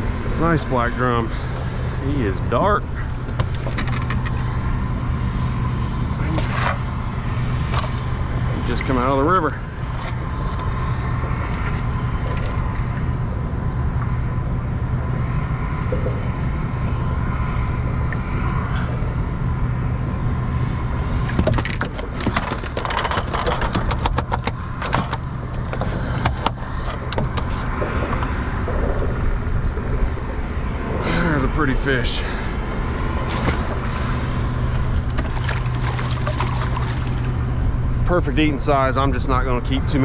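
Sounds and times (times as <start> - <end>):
steady low rumble: 0.0 - 40.0
clicks and knocks on boat deck: 3.2 - 4.5, 21.2 - 29.9.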